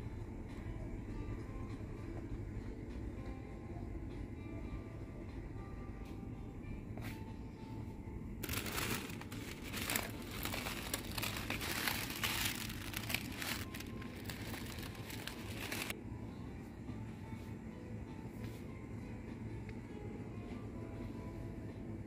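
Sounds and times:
plastic container crinkling: 8.4s - 15.9s.

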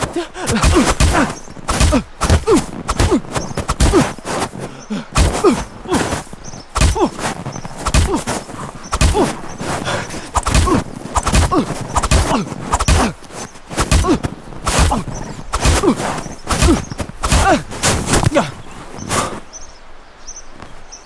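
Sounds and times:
man grunting: 0.0s - 4.2s, 4.8s - 7.3s, 7.9s - 8.4s, 9.0s - 13.2s, 13.9s - 18.6s
heavy thuds and blows: 0.0s - 18.5s.

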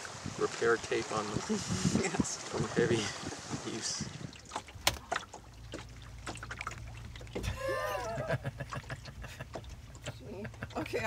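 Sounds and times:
low steady hum: 4.2s - 11.0s.

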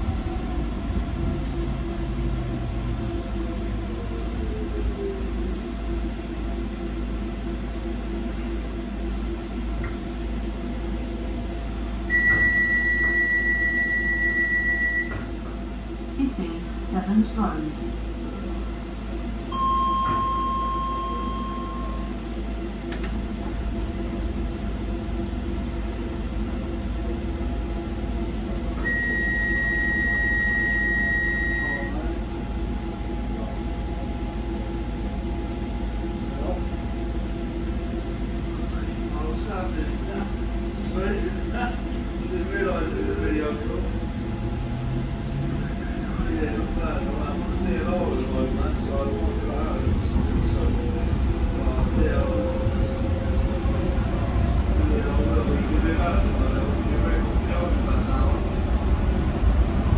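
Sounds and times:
train electric hum: 0.0s - 59.9s
high electronic beep: 28.8s - 32.0s.

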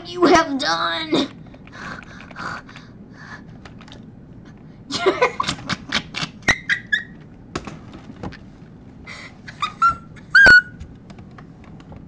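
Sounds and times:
boy laughing: 4.9s - 5.8s, 9.5s - 10.4s.

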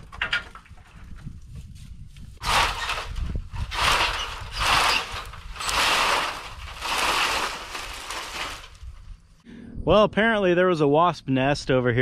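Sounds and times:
wooden gate scraping over dirt: 2.4s - 9.2s.

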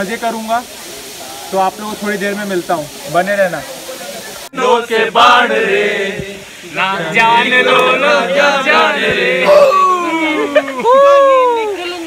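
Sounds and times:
young men singing and chanting: 4.5s - 10.7s.

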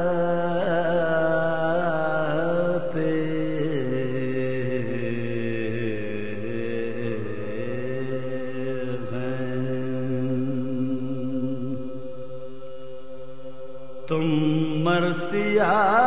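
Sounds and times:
man chanting verse: 14.1s - 16.0s.

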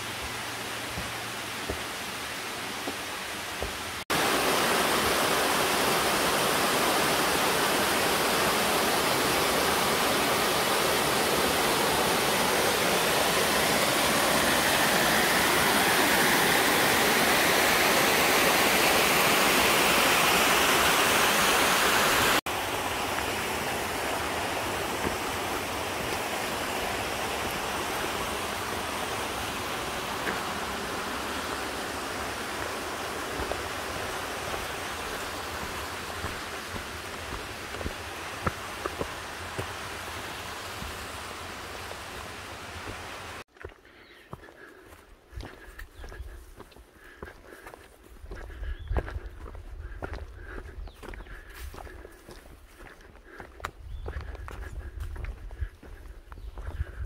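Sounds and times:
stream rushing over rocks: 0.0s - 43.5s.

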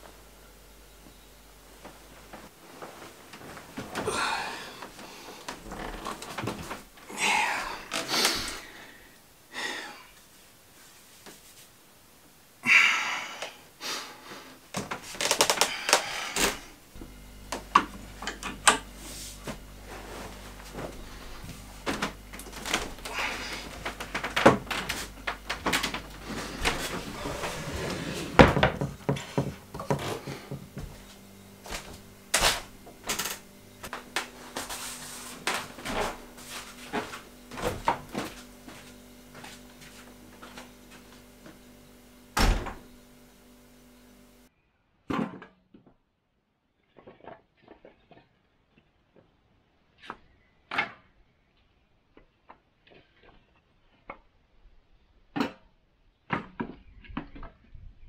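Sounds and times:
steady low hum: 0.0s - 44.5s
household knocks and clatters: 26.6s - 31.0s.

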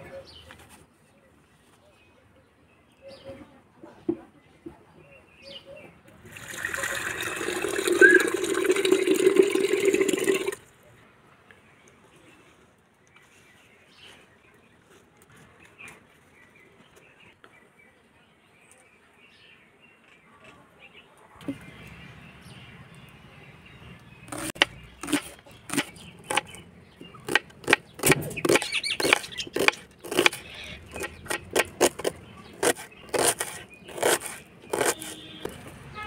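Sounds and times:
knife chopping on wooden board: 24.3s - 26.5s, 27.2s - 35.4s.

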